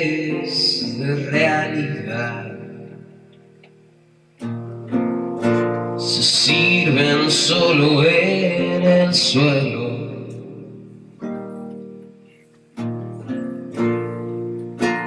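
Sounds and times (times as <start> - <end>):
man singing: 0.0 - 3.1, 5.8 - 10.8
acoustic guitar strumming: 0.0 - 15.0.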